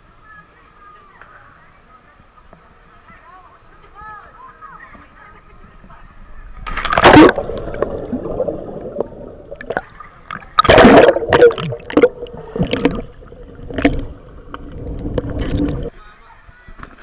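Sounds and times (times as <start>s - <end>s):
gurgling churning water: 6.6s - 15.9s
underwater rush of bubbles: 6.7s - 15.9s.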